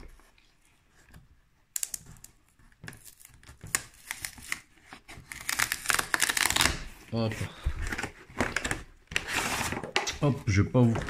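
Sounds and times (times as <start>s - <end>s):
cardboard box being opened: 3.1s - 10.0s.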